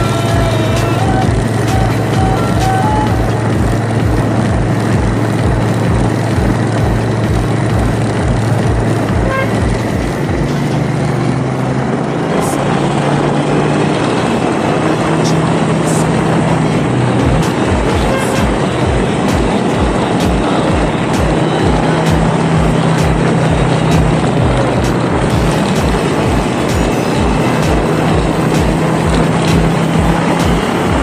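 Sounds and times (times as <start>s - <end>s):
short horn beep: 0.0s - 3.5s, 9.2s - 9.7s, 17.8s - 18.7s
motorbike engine running: 0.0s - 31.0s
wind buffeting microphone: 0.0s - 31.0s.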